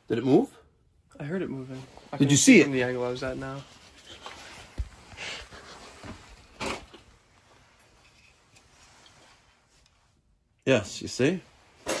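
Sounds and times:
handling rustles: 0:03.1 - 0:10.0.

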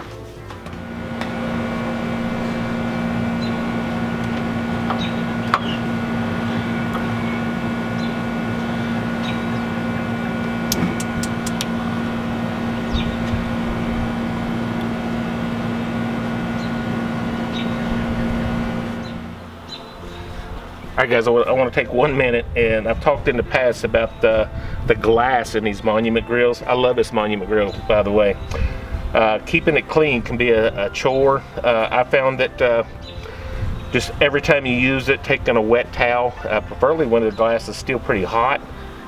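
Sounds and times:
air conditioner humming: 0:00.0 - 0:39.0
grill igniter clicking: 0:00.5 - 0:19.8.

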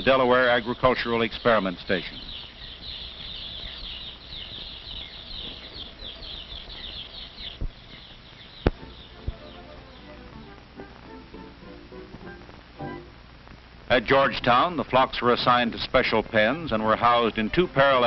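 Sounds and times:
chicks peeping: 0:00.0 - 0:13.0
faint music: 0:00.0 - 0:18.0.

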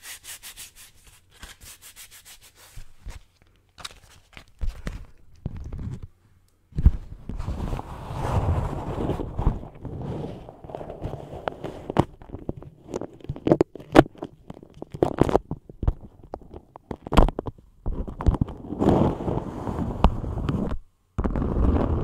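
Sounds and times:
wax wrap crinkling: 0:07.4 - 0:19.2.

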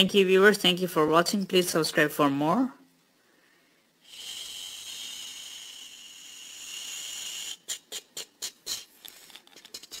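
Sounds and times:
steady high hiss: 0:01.5 - 0:10.0
short hissing bursts: 0:04.0 - 0:10.0.

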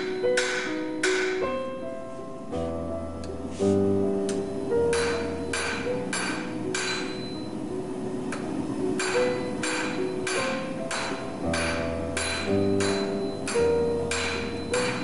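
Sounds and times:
hammer striking metal on anvil: 0:00.0 - 0:01.5, 0:04.9 - 0:07.4, 0:09.0 - 0:15.0.

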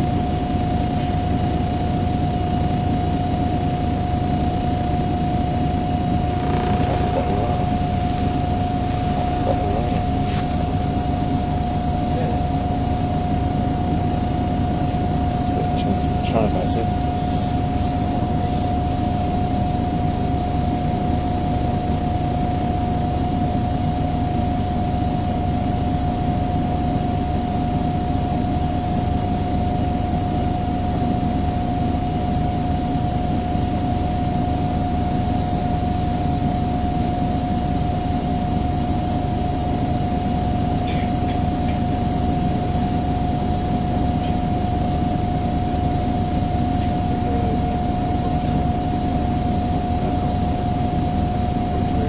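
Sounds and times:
bus diesel engine idling: 0:00.0 - 0:23.8, 0:37.9 - 0:52.0
high whine: 0:00.0 - 0:52.0.

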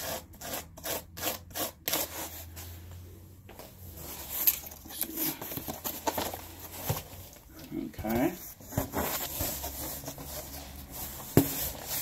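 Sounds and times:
tool rasping through cardboard: 0:00.0 - 0:02.3.

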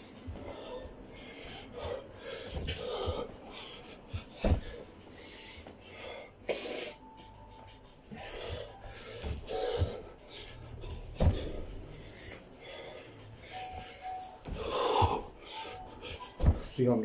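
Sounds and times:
man breathing hard: 0:00.0 - 0:07.2, 0:07.8 - 0:16.7
thuds on carpeted floor: 0:04.2 - 0:04.8, 0:08.5 - 0:10.1, 0:10.9 - 0:11.8, 0:14.4 - 0:15.3, 0:16.4 - 0:16.8.

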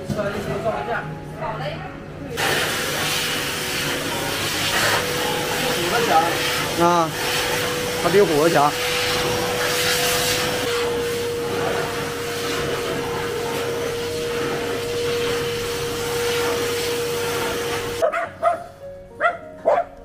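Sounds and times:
blow dryer running: 0:02.3 - 0:18.1.

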